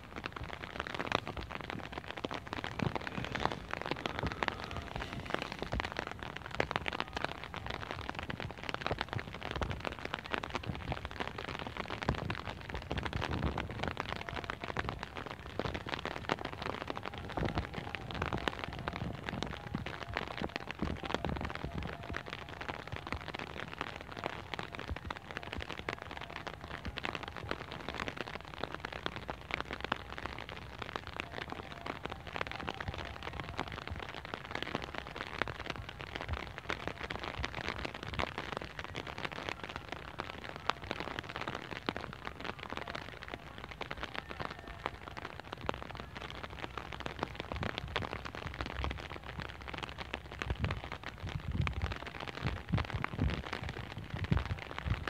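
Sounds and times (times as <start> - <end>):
wind gusts buffeting microphone: 0.0 - 22.2, 50.4 - 55.0.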